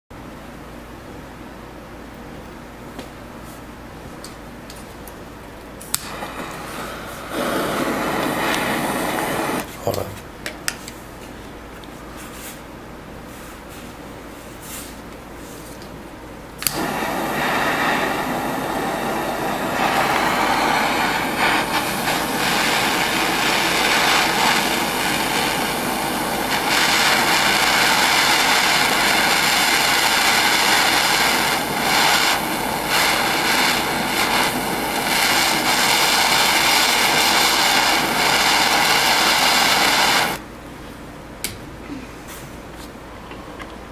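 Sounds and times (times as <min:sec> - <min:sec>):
butane torch hissing: 0:05.8 - 0:09.7, 0:16.6 - 0:40.4.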